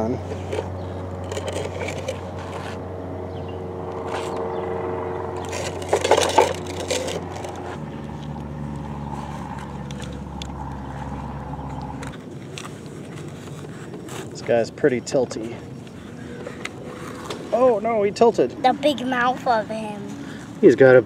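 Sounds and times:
rattling and scraping: 0:00.0 - 0:02.8, 0:05.3 - 0:17.8.

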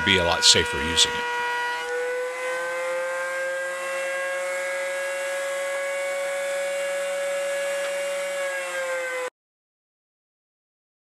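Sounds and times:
router high whine: 0:00.0 - 0:09.3.

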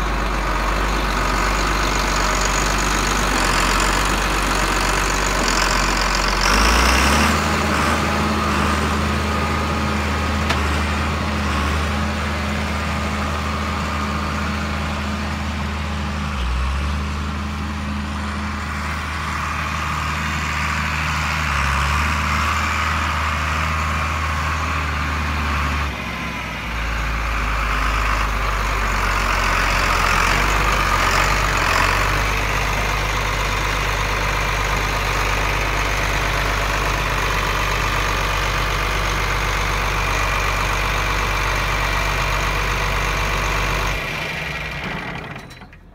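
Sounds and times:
tractor diesel engine running: 0:00.0 - 0:45.9.

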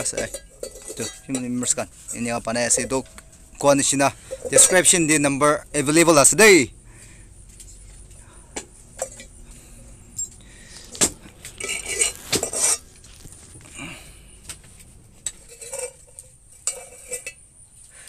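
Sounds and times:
metal utensils clinking: 0:00.0 - 0:05.1, 0:10.2 - 0:12.9, 0:15.2 - 0:17.4.

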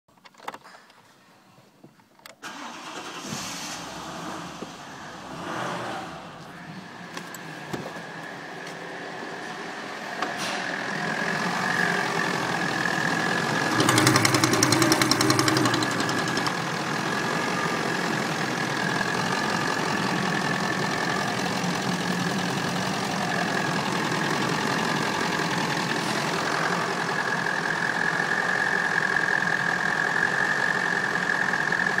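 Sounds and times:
diesel engine idling: 0:06.1 - 0:32.0
engine rattling: 0:09.3 - 0:32.0.

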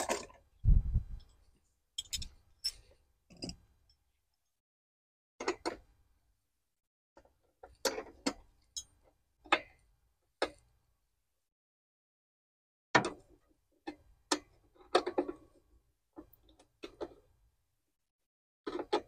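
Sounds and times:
wrench clinking on bolts: 0:02.0 - 0:03.5.

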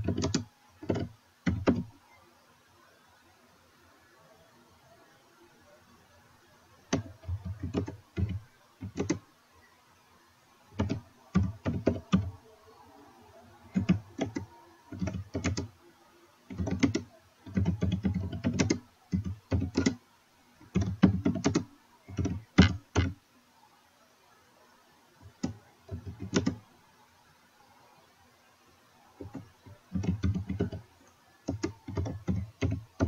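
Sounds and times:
typing on computer keyboard: 0:00.0 - 0:01.9, 0:06.9 - 0:09.2, 0:10.8 - 0:12.3, 0:13.7 - 0:15.7, 0:16.5 - 0:20.0, 0:20.6 - 0:23.2, 0:25.2 - 0:26.6, 0:29.2 - 0:30.8, 0:31.4 - 0:33.0.

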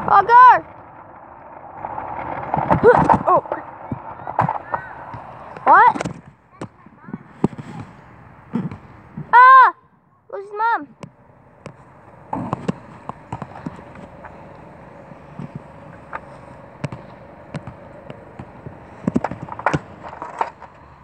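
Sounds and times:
caster board rolling on pavement: 0:00.0 - 0:09.3, 0:10.9 - 0:21.0
board clicks and knocks: 0:00.1 - 0:06.8, 0:11.0 - 0:20.9.

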